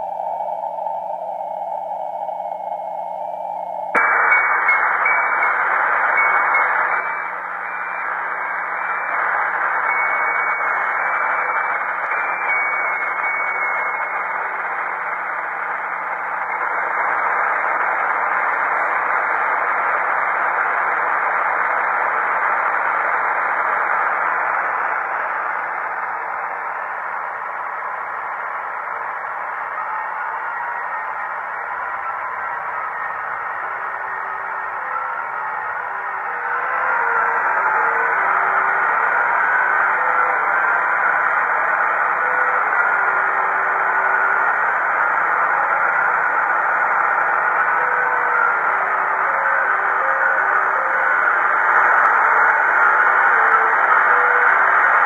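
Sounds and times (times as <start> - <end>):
low hum: 0.0 - 42.6
faint high steady tone: 0.0 - 55.0
radio static hiss: 0.0 - 55.0.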